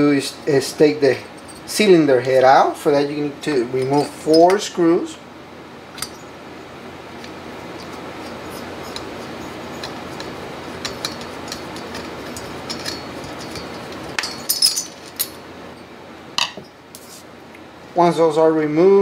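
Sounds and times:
sharp metal clinks: 12.7 - 15.4.

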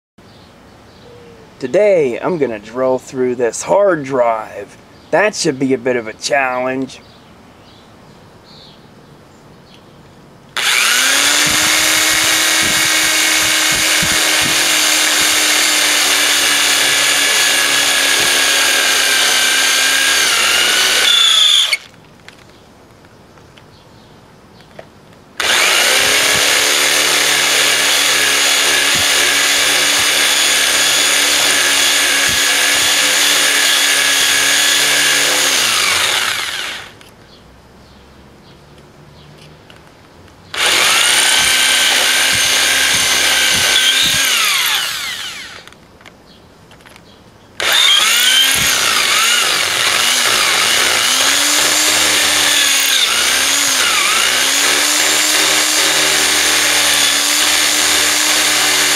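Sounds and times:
electric drill motor whining: 10.6 - 21.9, 25.4 - 37.0, 40.5 - 45.8, 47.6 - 58.9.

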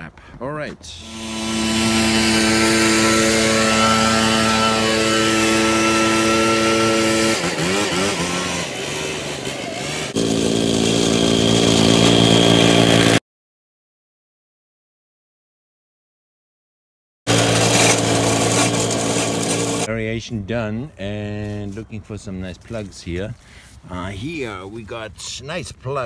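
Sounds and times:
leaf blower engine running: 1.0 - 13.2, 17.3 - 19.9
aerator engine with high whine: 10.1 - 13.2.

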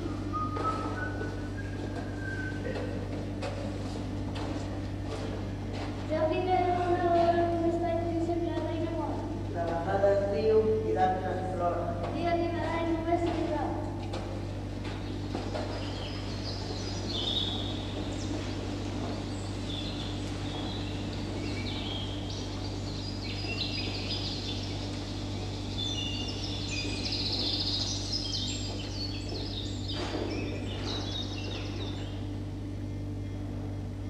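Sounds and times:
low electrical hum: 0.0 - 34.0
birds chirping and trilling: 14.7 - 32.5.

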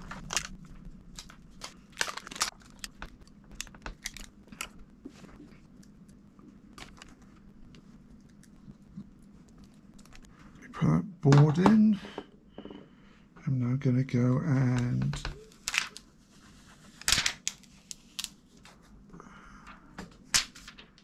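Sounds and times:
plastic crinkling: 0.0 - 10.3, 15.4 - 16.1.

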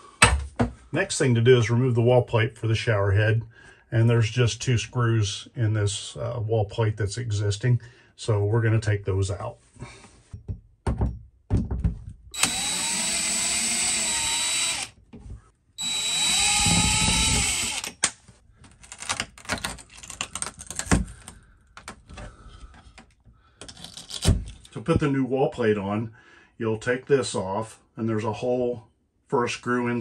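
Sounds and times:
cordless drill motor whine: 12.4 - 14.9, 15.8 - 18.0.

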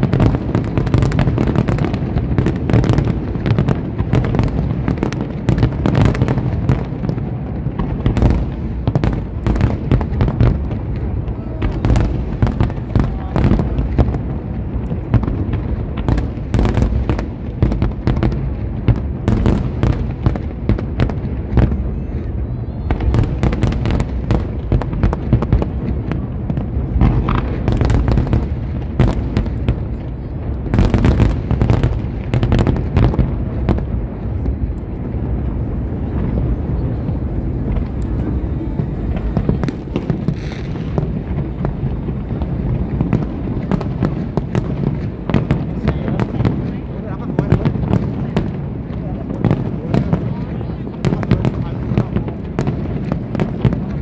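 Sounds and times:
fireworks cracks and crackles: 0.0 - 54.0
low booms of bursting shells: 0.0 - 54.0.

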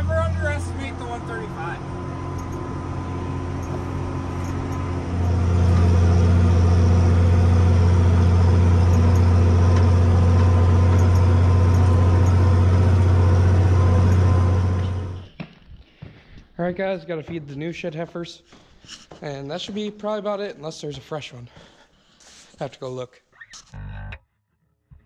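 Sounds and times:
farm machine engine running: 0.0 - 15.2.

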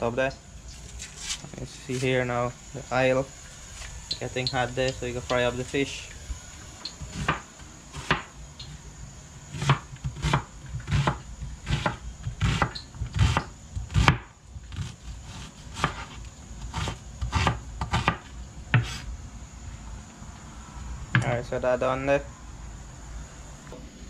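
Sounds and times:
knife chopping on cutting board: 8.0 - 8.3, 9.6 - 14.2, 16.8 - 18.2, 18.8 - 19.0.

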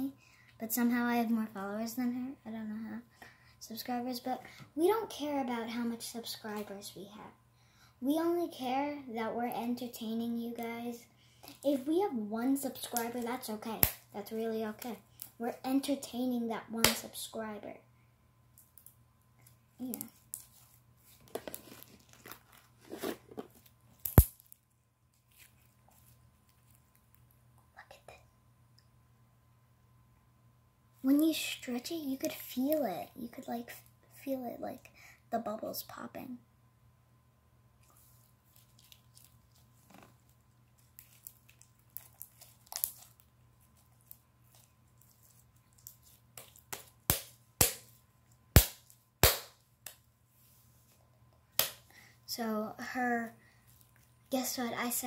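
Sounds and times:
slime wet crackling squishes: 37.8 - 47.8
sharp loud pop: 48.6 - 49.6.

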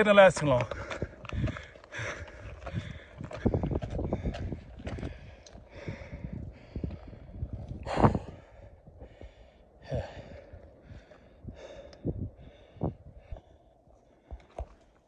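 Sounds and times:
footsteps crunching on gravel: 0.0 - 5.8
person breathing hard: 0.7 - 15.0.

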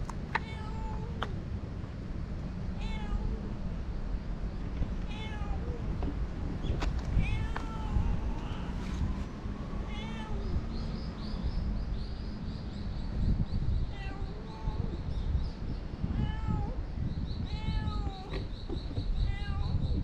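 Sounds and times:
steady low rumble: 0.0 - 20.0
cat meowing: 2.8 - 3.4, 5.1 - 5.8, 7.2 - 8.8, 9.9 - 10.5, 13.9 - 15.0, 16.2 - 16.8, 17.5 - 18.4, 19.3 - 19.8.

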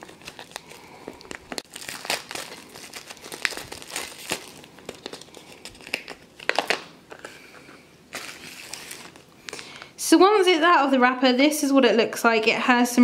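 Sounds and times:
plastic wrap crinkling: 0.0 - 9.8.

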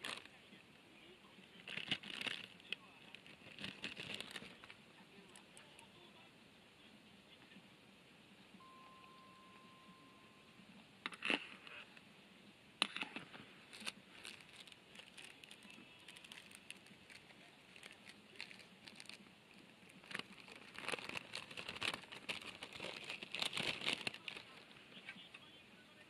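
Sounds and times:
plastic packet crinkling and tearing: 0.0 - 0.4, 1.5 - 5.4, 12.8 - 24.8.

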